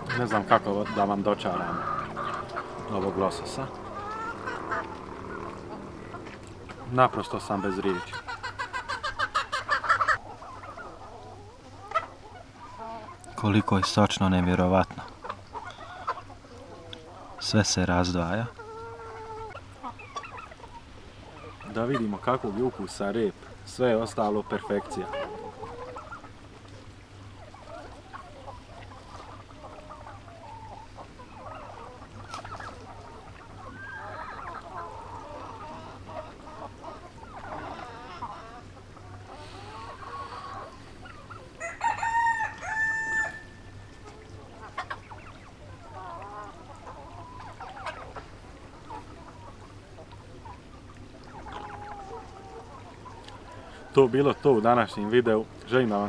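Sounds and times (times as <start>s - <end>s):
chickens clucking: 0.0s - 56.0s
rooster crowing: 41.6s - 43.8s.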